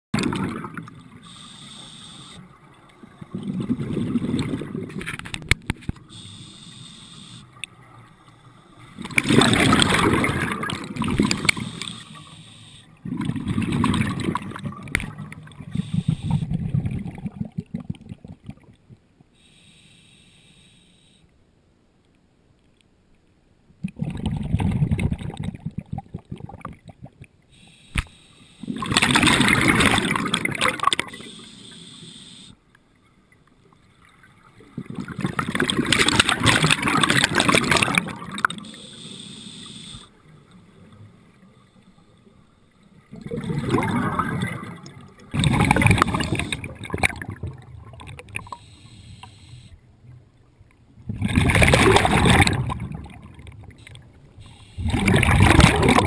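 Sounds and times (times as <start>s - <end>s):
quiet bubbling and gurgling: 0.1s - 56.0s
underwater exhaled bubbles rushing: 0.2s - 1.4s, 2.2s - 6.7s, 8.7s - 19.0s, 23.8s - 27.3s, 28.6s - 31.5s, 34.1s - 39.1s, 42.9s - 48.7s, 51.0s - 56.0s.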